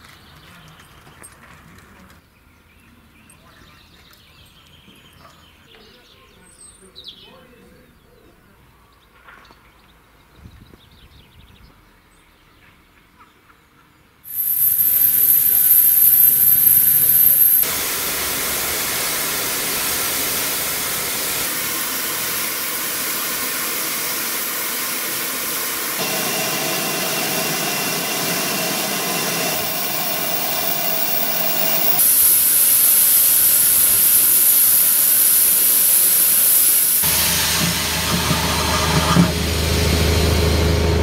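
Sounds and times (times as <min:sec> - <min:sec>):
steam blowing from drain cocks: 0:14.3 - 0:41.0
steam hissing: 0:14.3 - 0:41.0.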